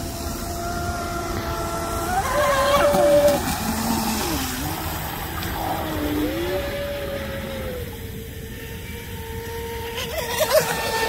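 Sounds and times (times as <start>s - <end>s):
hiss of spray and water: 0.0s - 6.9s
speedboat motor whining: 0.0s - 11.0s.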